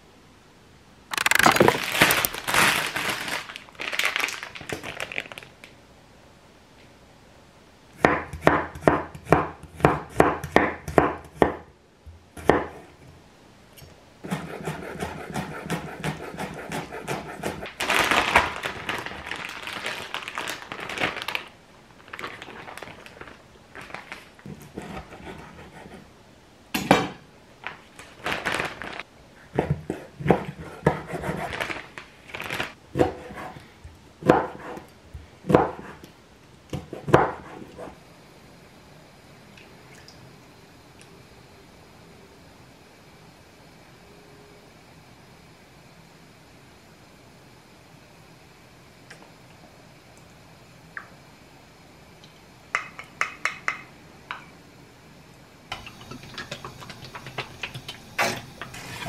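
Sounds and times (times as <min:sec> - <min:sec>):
rustling and handling noise: 0:01.1 - 0:05.8, 0:17.5 - 0:26.1, 0:27.6 - 0:34.0
knife chopping on wooden board: 0:08.0 - 0:11.6, 0:12.4 - 0:12.8, 0:14.3 - 0:17.6, 0:34.2 - 0:34.8.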